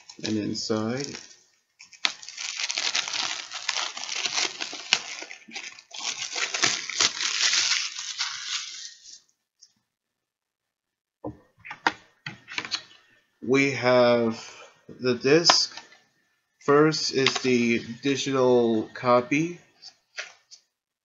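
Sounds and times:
plastic packaging crinkling: 0:00.0 - 0:09.2, 0:17.3 - 0:17.6.

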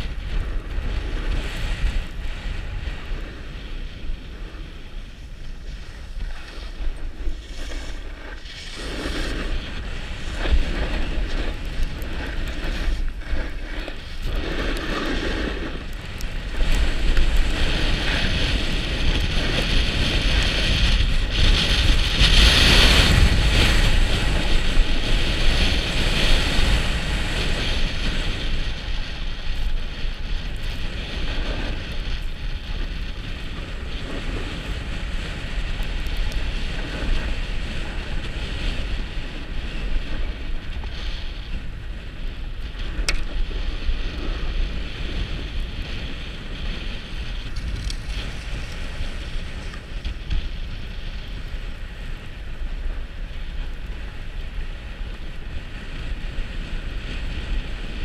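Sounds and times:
skis scraping over snow: 0:00.0 - 0:58.0
wind on microphone: 0:00.0 - 0:58.0.

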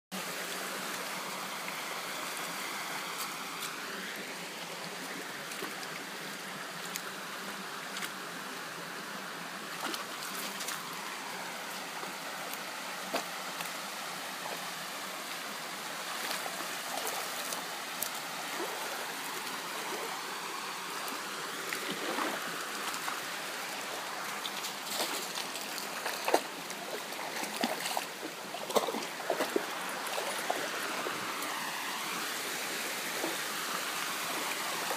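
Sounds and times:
stream rushing over rocks: 0:00.1 - 0:34.9
dog splashing through water: 0:24.2 - 0:31.6.

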